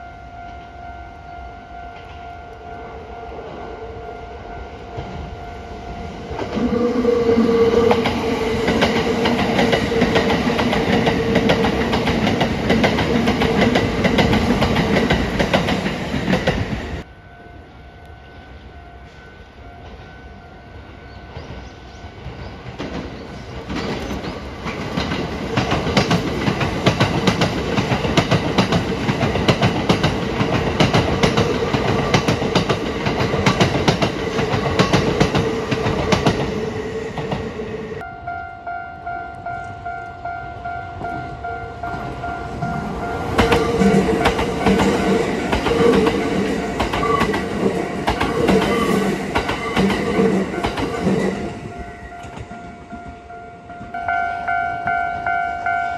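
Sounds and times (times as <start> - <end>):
electric train passing: 0.0 - 55.9
steady train tone: 0.0 - 55.9
train wheel clatter: 6.3 - 17.1, 22.2 - 37.5, 41.9 - 51.6.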